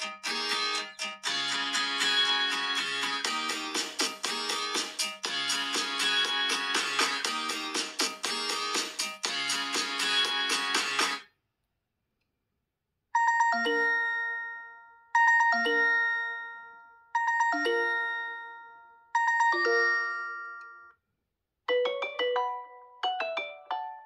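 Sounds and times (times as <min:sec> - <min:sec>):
fast ringtone falling notes: 0:13.2 - 0:20.9, 0:21.7 - 0:24.0
phone ringtone chiming notes: 0:13.2 - 0:21.0, 0:21.7 - 0:24.0.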